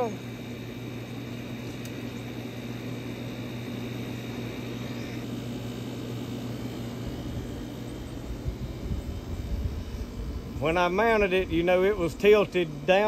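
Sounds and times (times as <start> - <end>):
faint high whine: 0.0 - 13.0
low mechanical hum: 0.0 - 13.0.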